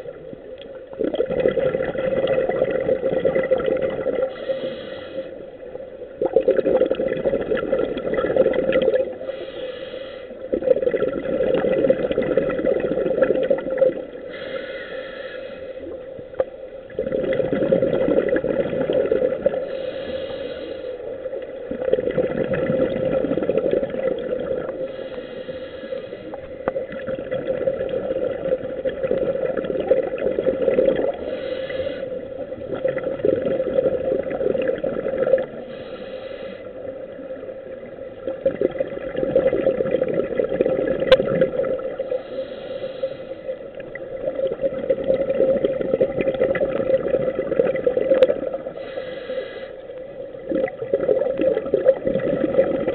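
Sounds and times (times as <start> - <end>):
exhaled bubbles rumbling: 0.0 - 4.4, 5.5 - 9.4, 10.4 - 14.3, 15.8 - 19.9, 21.2 - 25.1, 26.1 - 35.8, 36.7 - 42.4, 43.6 - 48.9, 50.0 - 52.9
regulator inhalation hiss: 4.3 - 5.5, 9.2 - 10.4, 14.2 - 16.0, 19.6 - 21.2, 24.8 - 26.4, 31.2 - 32.4, 35.6 - 37.0, 42.0 - 43.7, 48.7 - 50.0.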